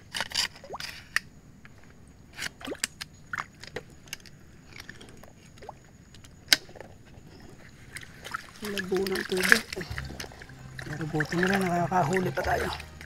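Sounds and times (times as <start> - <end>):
water sloshing and dripping: 2.4 - 13.0
small splashes: 7.3 - 13.0
bubbly gurgles: 7.9 - 13.0.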